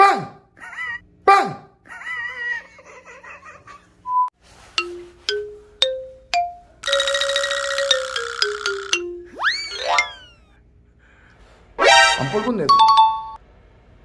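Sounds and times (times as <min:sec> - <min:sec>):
mallet notes climbing in pitch: 0:04.8 - 0:10.4
jingling comic sound-effect tune: 0:04.8 - 0:10.5.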